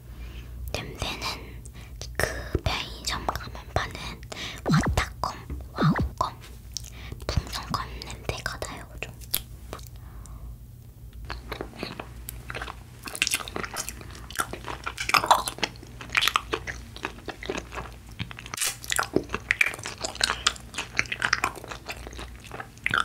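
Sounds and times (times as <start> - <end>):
person chewing gummy candy: 3.3 - 10.3, 11.2 - 23.0.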